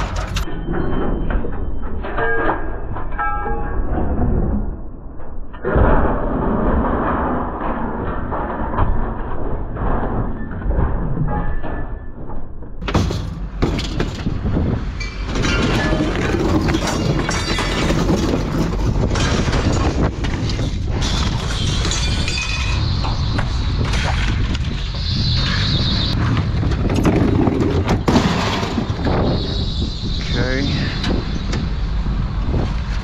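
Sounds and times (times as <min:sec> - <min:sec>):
scrap metal clattering and crashing: 0:00.0 - 0:01.3, 0:12.8 - 0:25.0, 0:26.2 - 0:29.4
steady low rumble: 0:16.0 - 0:33.0.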